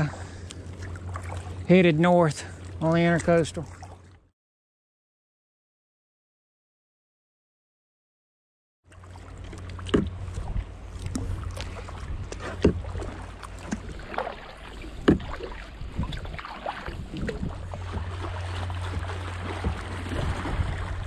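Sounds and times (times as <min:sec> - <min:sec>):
paddle splashing through water: 0:00.0 - 0:01.7, 0:02.4 - 0:04.2, 0:08.9 - 0:21.0
low rumble: 0:09.0 - 0:21.0.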